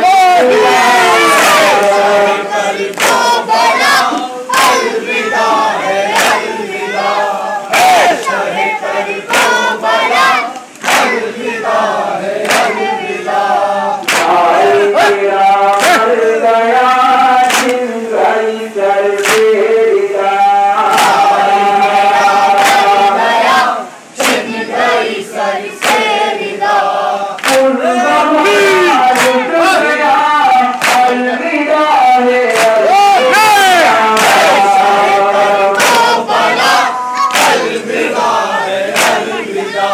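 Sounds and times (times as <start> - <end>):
men chanting in chorus: 0.0 - 39.9
hands slapping chests: 2.9 - 4.9, 6.1 - 6.5, 9.3 - 11.2, 12.4 - 12.9, 14.0 - 14.4, 17.5 - 17.8, 19.2 - 19.5, 25.8 - 26.1, 27.4 - 27.7, 29.2 - 29.4, 30.7 - 31.1, 32.5 - 32.8, 35.7 - 37.8, 38.9 - 39.2.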